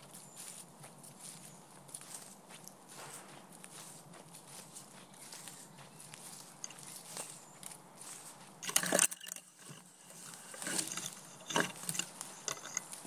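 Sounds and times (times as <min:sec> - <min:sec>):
footsteps crunching leaves and twigs: 0:00.0 - 0:13.0
leaves brushing past: 0:02.0 - 0:07.4.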